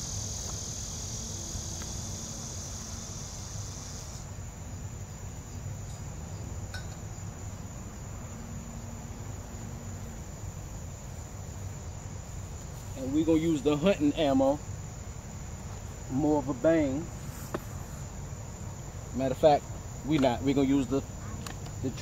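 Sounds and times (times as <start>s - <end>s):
high-pitched insect chorus: 0.0s - 22.0s.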